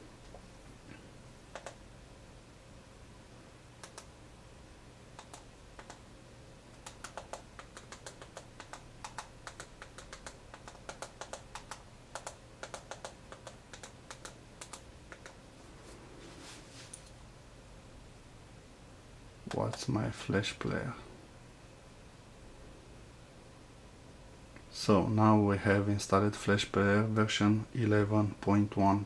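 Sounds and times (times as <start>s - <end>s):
keyboard typing clicks: 1.5s - 1.8s, 3.8s - 4.1s, 5.2s - 6.0s, 6.7s - 15.4s.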